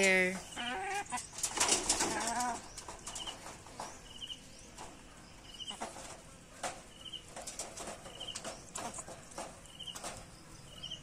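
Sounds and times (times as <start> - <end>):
beaks tapping on wire mesh: 5.6 - 11.0.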